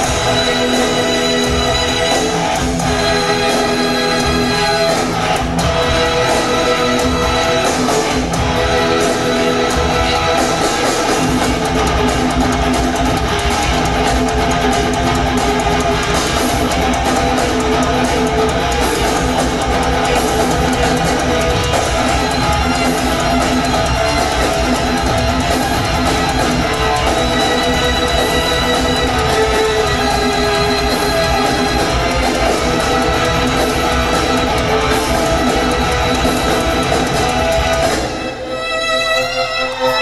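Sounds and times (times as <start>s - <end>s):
live rock band playing: 0.0s - 40.0s.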